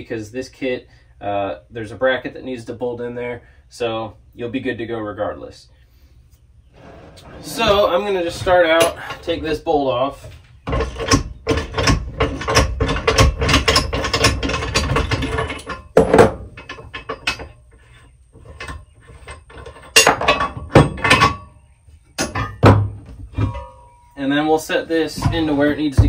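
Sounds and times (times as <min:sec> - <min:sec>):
metal clunk: 0:10.7 - 0:17.8, 0:18.4 - 0:24.2.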